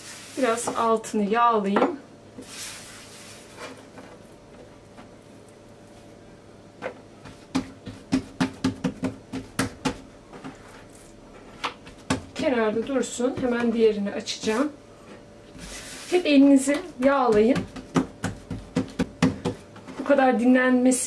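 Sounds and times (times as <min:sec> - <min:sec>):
hands patting dough on board: 0:06.8 - 0:10.6, 0:11.6 - 0:13.9, 0:16.6 - 0:19.8.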